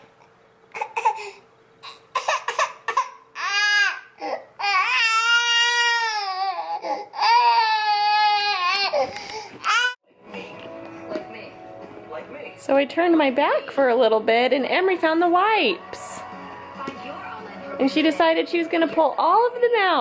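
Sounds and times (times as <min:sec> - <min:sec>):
baby crying and wailing: 0:00.8 - 0:10.0.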